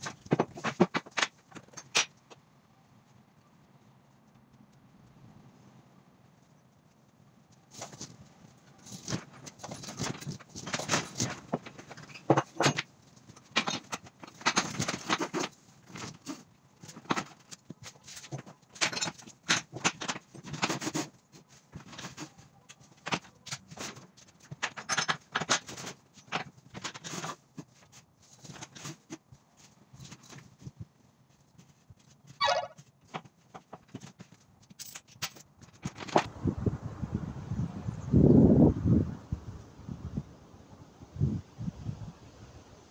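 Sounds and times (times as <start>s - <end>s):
brief squeak: 32.4s - 32.8s
metal hooks and buckles clinking: 34.7s - 36.2s.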